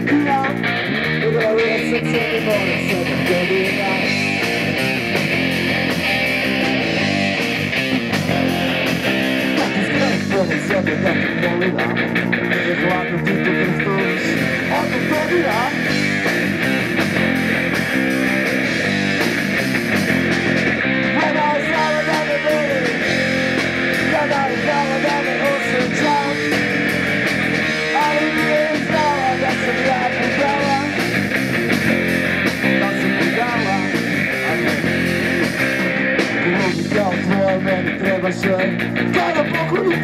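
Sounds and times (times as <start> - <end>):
man singing: 0.0 - 4.4, 9.5 - 15.8, 21.1 - 26.6, 27.8 - 31.1, 32.6 - 35.0, 36.4 - 40.0
rock band playing: 0.0 - 40.0.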